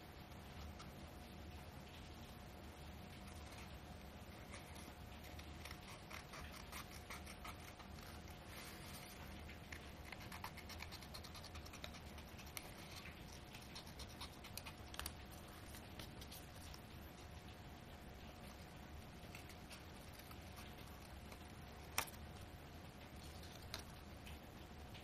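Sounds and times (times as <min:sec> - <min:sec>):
scissors snipping paper: 0:04.5 - 0:08.4, 0:09.6 - 0:16.8.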